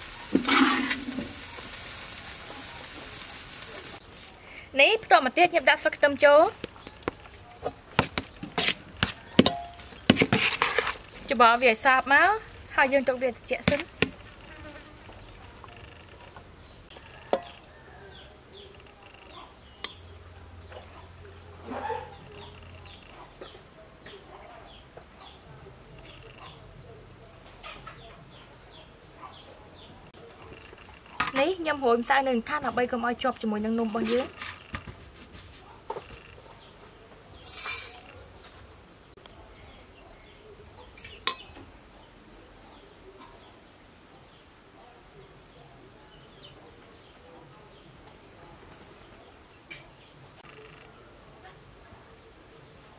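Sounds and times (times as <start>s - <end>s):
metal spoon scraping a bowl: 9.4s - 11.1s.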